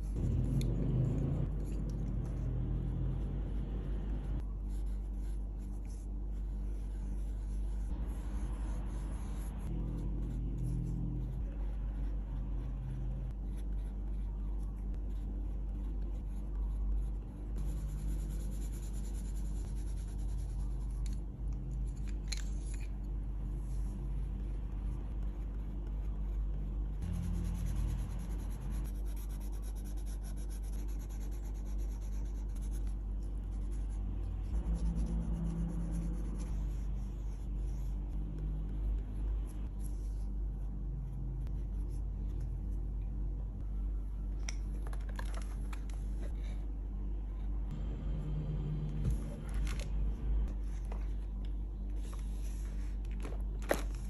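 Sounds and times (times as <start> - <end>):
pencil scratching on paper: 0.0 - 21.2, 23.5 - 42.2
low hum: 0.0 - 54.0.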